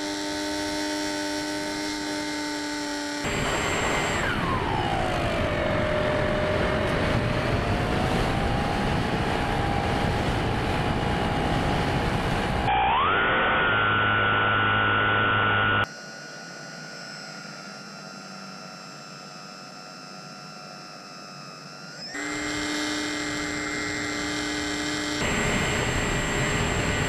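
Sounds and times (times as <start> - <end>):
electric motor and propeller whining: 0.0 - 27.0
wind rush: 3.3 - 12.7.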